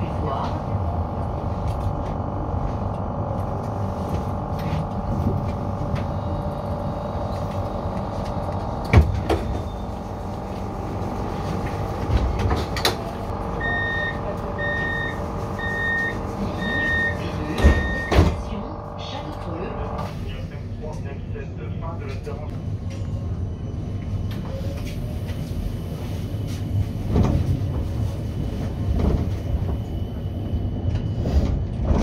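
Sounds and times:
tram electric hum and rumble: 0:00.0 - 0:32.0
short beeps: 0:13.6 - 0:18.4.

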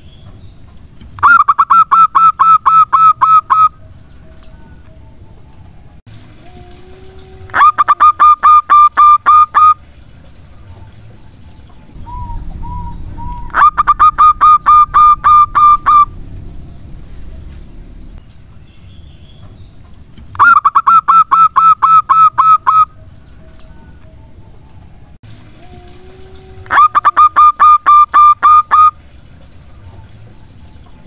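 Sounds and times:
dove cooing: 0:11.9 - 0:16.3.

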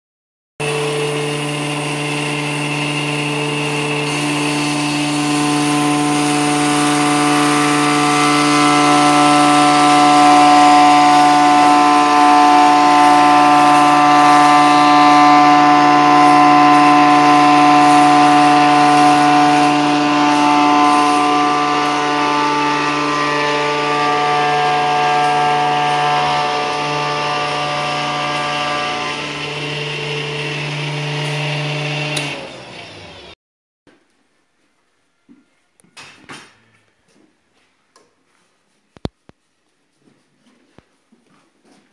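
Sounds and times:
electric power tool humming: 0:00.6 - 0:33.4.

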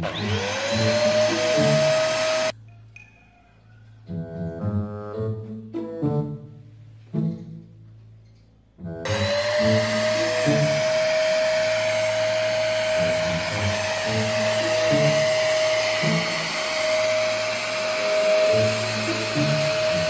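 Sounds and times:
vacuum cleaner running: 0:00.0 - 0:02.5, 0:09.0 - 0:20.0.

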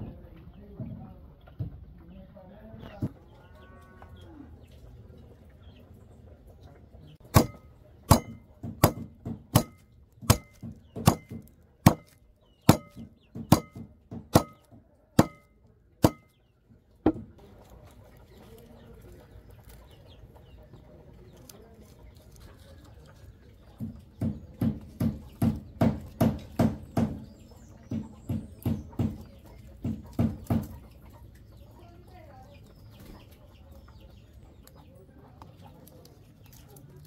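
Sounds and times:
tool knocking on wood: 0:07.3 - 0:16.3, 0:17.0 - 0:17.4, 0:23.8 - 0:30.8.

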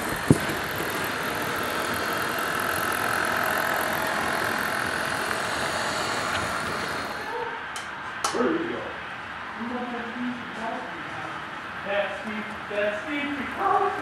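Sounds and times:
model train running on track: 0:00.0 - 0:07.4.

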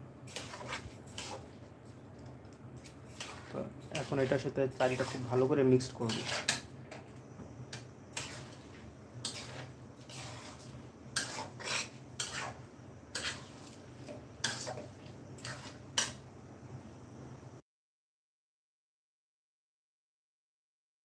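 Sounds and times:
steady low hum: 0:00.0 - 0:17.6
metal spatula scraping wok: 0:00.2 - 0:01.7, 0:02.8 - 0:16.2.

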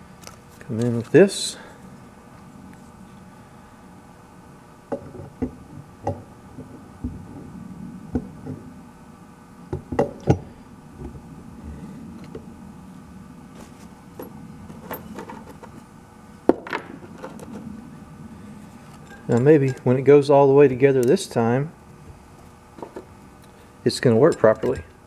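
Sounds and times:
metal motor part clinking: 0:14.2 - 0:15.7, 0:24.1 - 0:25.0.

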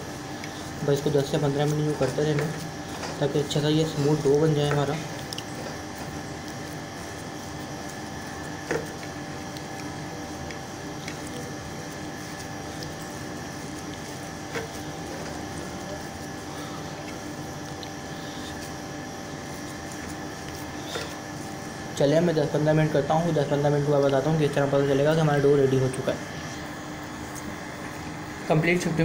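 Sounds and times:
hands kneading on ceramic plate: 0:00.0 - 0:22.7
machine hum: 0:00.0 - 0:29.0.

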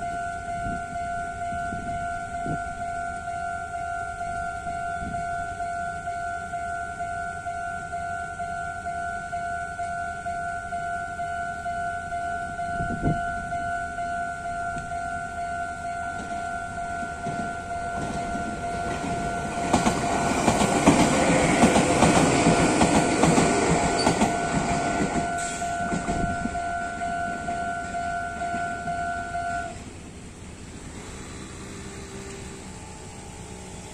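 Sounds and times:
two-tone crossing warning bell: 0:00.0 - 0:33.9
train rumbling with clattering wheels: 0:14.7 - 0:33.9.

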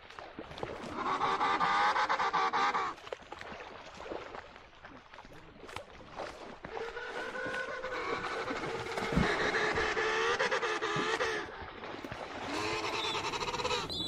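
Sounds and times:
penguin braying: 0:07.4 - 0:11.5, 0:12.5 - 0:14.0.

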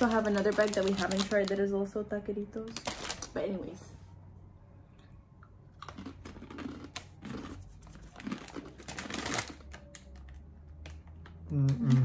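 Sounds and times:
crunching tortilla chips: 0:05.8 - 0:12.0.

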